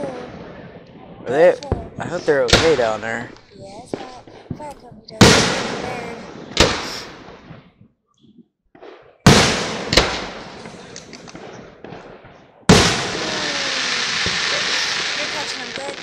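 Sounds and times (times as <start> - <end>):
sharp firework crack: 0.0 - 7.7, 8.8 - 16.0
fireworks booming: 0.0 - 16.0
steady hiss: 13.2 - 16.0.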